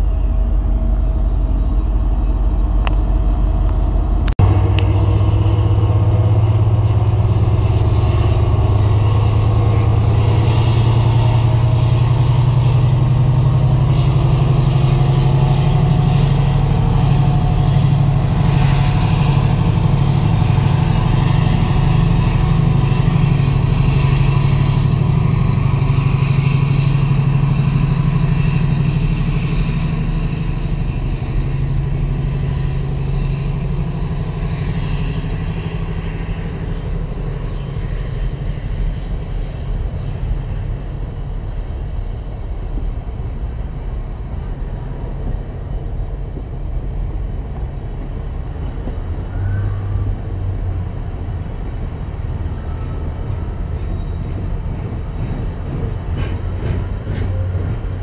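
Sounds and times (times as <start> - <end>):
diesel locomotive engine: 0.0 - 58.0
wagons rumbling and clattering: 53.0 - 58.0.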